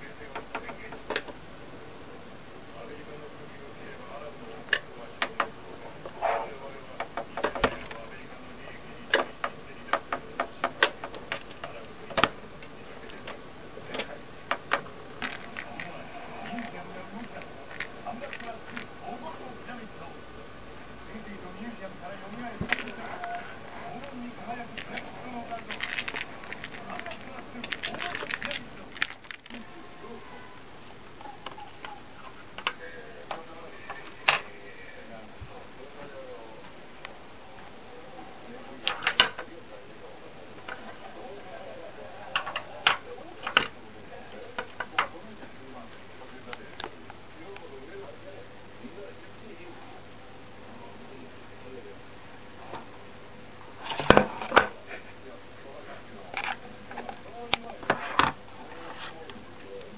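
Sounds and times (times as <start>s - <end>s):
cat paws clicking and tapping: 24.7s - 29.6s.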